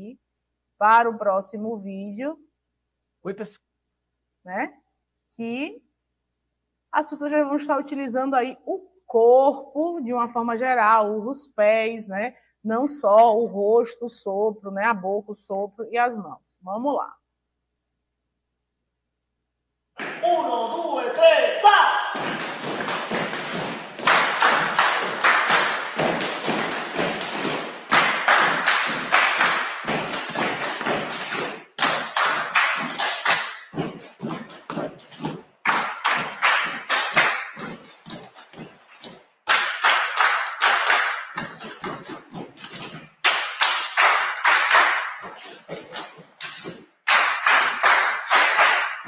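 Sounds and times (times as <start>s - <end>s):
hand claps and slaps: 20.0s - 20.5s, 22.1s - 49.0s.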